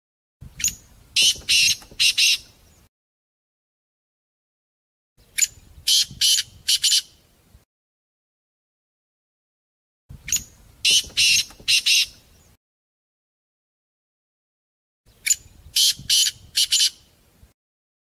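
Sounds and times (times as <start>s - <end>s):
partridge calling: 0.5s - 2.5s, 5.2s - 7.2s, 10.2s - 12.2s, 15.1s - 17.0s.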